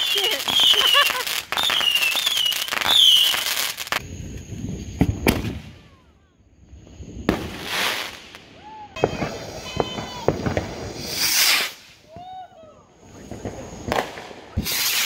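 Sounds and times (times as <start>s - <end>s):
firework sharp pops: 0.0s - 5.8s, 7.2s - 12.3s, 13.1s - 15.0s
high wavering whistles: 0.0s - 10.3s
fireworks crackling: 0.0s - 15.0s.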